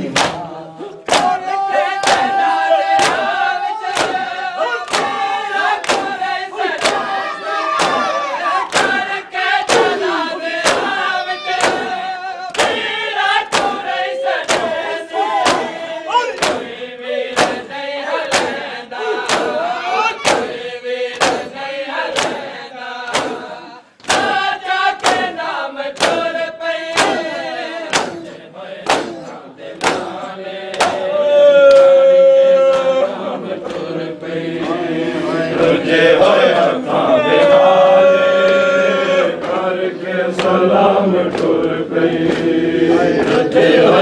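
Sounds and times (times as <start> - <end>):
hands slapping chests: 0.0 - 17.7, 18.3 - 22.5, 23.1 - 32.0, 32.7 - 34.0, 39.3 - 39.6, 40.3 - 40.6, 41.2 - 43.5
group chanting: 0.0 - 44.0.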